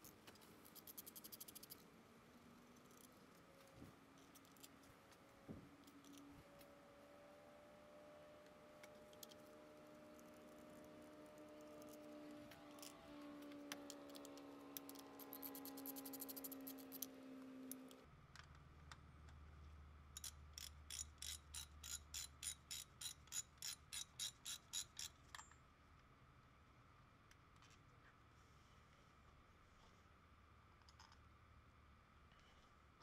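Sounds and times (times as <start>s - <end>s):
ratchet wrench clicking: 14.8s - 17.1s, 20.2s - 25.2s.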